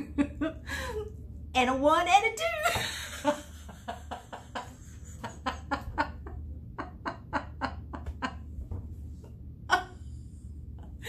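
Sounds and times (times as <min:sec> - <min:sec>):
woman laughing: 0:00.0 - 0:01.1, 0:02.6 - 0:08.6.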